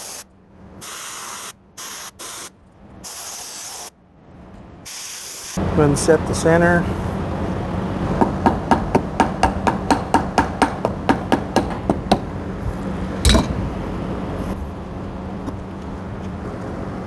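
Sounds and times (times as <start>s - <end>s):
loud knock: 13.3s - 13.6s.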